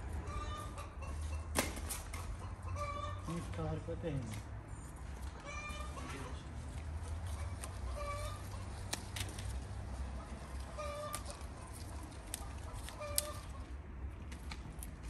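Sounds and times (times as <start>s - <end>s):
chicken clucking: 0.2s - 1.5s, 2.1s - 3.7s, 5.3s - 13.7s
fruit stems snapping: 8.6s - 9.8s, 10.5s - 15.0s.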